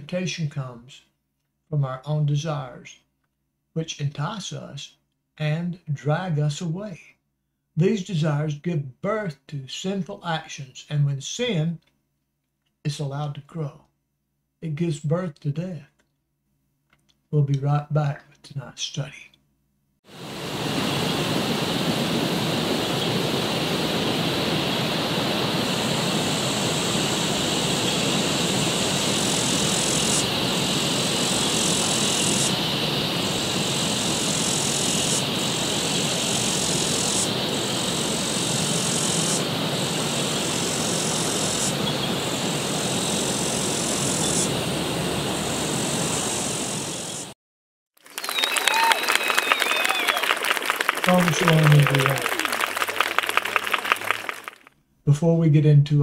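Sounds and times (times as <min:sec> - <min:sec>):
high hiss switching on and off: 0:20.2 - 0:47.3.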